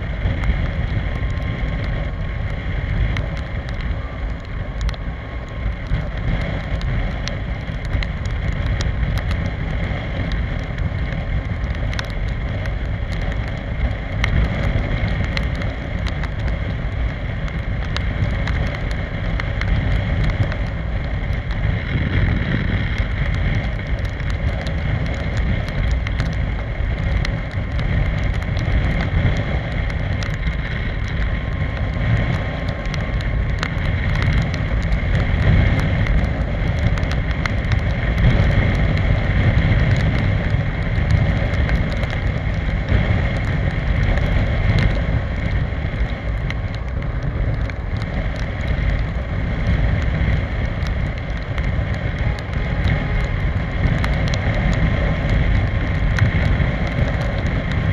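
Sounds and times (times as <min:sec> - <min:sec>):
wind rushing over microphone: 0:00.0 - 0:57.9.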